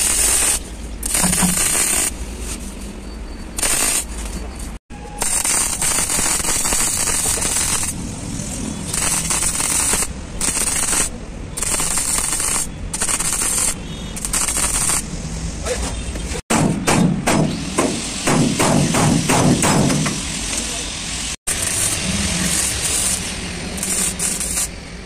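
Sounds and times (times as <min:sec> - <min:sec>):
welder arc crackling: 0:00.0 - 0:02.2, 0:03.6 - 0:04.1, 0:05.2 - 0:15.1, 0:21.4 - 0:24.8.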